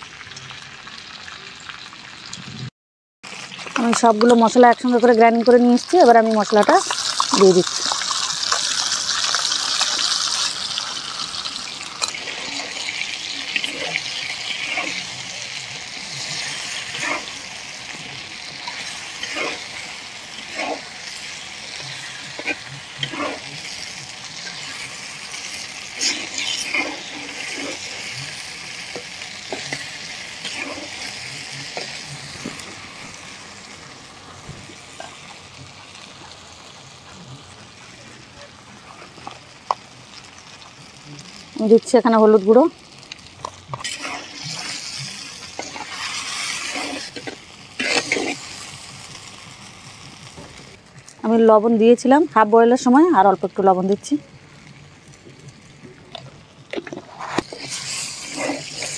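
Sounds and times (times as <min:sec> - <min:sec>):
spice paste sizzling in oil: 0:03.3 - 0:58.9
metal spatula scraping pan: 0:12.0 - 0:15.3, 0:16.1 - 0:17.5, 0:18.6 - 0:32.7, 0:43.7 - 0:48.5, 0:56.8 - 0:58.9.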